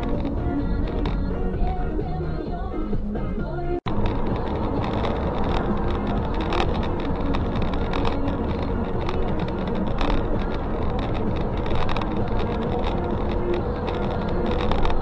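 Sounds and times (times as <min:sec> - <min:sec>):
small knocks and rattles: 0:00.0 - 0:01.8, 0:03.9 - 0:15.0
car road and engine noise: 0:00.0 - 0:15.0.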